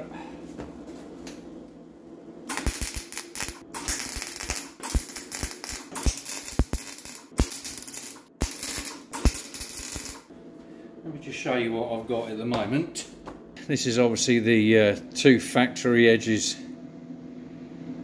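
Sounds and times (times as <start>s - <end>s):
welder arc crackling: 2.5s - 10.3s.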